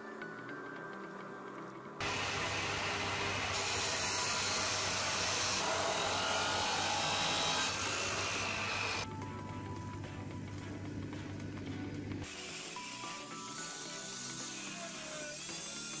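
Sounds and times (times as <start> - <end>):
chop saw grinding metal: 2.0 - 9.0, 12.3 - 16.0.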